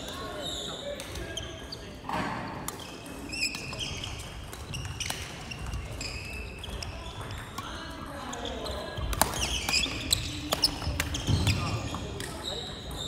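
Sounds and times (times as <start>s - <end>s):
shoes squeaking on wooden floor: 2.8s - 7.6s, 8.3s - 12.8s.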